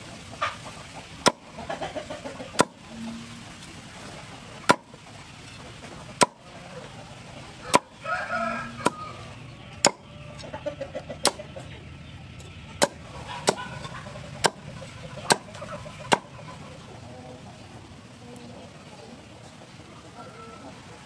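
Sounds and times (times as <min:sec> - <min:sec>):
chicken clucking: 0:00.0 - 0:21.0
knife chopping on wooden board: 0:12.8 - 0:13.6.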